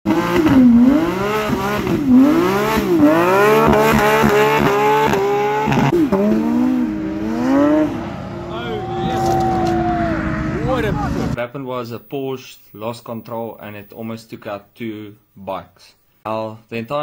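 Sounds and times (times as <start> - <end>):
car engine accelerating hard: 0.1 - 11.4.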